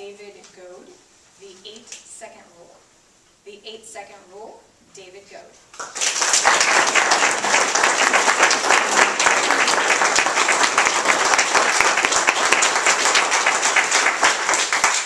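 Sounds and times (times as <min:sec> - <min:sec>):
audience applauding: 0:05.8 - 0:15.0.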